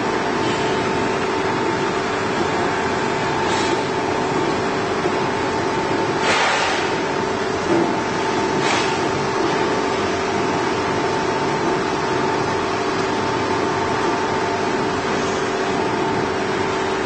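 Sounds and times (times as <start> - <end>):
grinding machine humming: 0.0 - 17.0.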